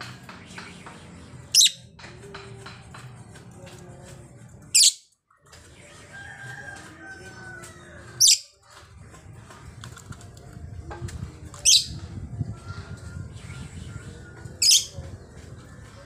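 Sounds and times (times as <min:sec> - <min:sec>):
quieter bird sounds: 0:00.0 - 0:03.5, 0:11.6 - 0:16.0.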